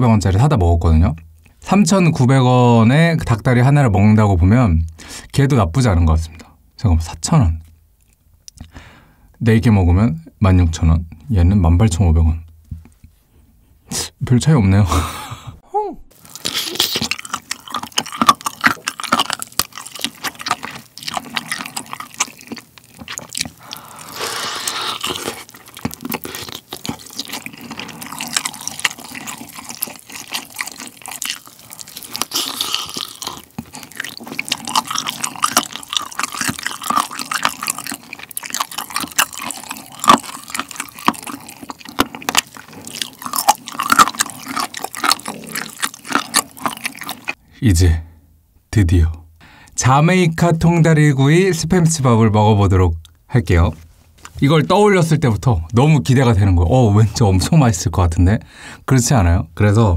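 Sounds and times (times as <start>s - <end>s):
chewing with mouth clicks: 16.2s - 47.4s
biting into meat: 16.3s - 47.4s.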